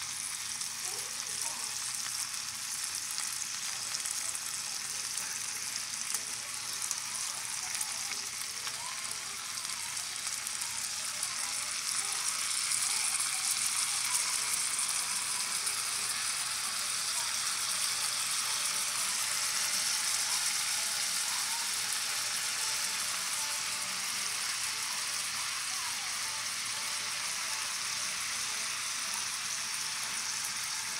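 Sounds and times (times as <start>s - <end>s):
chicken sizzling in a skillet: 0.0s - 30.9s.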